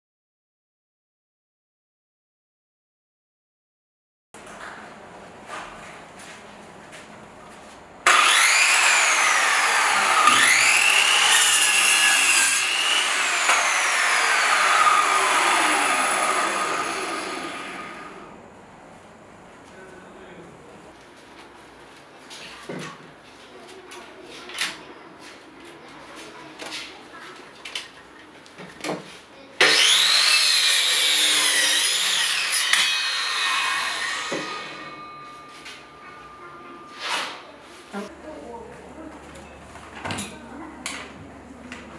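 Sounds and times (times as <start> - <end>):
circular saw cutting wood: 8.1 - 18.4, 29.6 - 37.4
circular saw whine: 8.1 - 18.4, 29.7 - 37.6.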